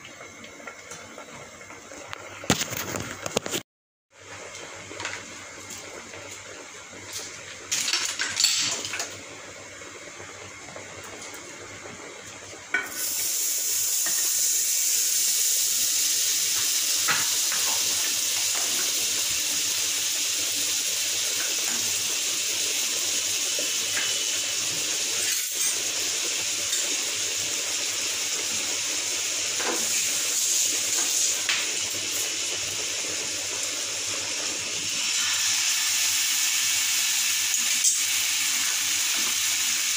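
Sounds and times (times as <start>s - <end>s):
butter sizzling in a pan: 12.4s - 39.9s.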